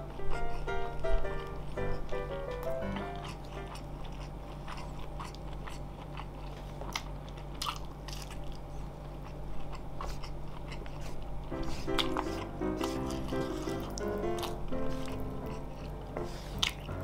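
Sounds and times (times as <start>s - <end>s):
man chewing and biting: 0.0s - 17.0s.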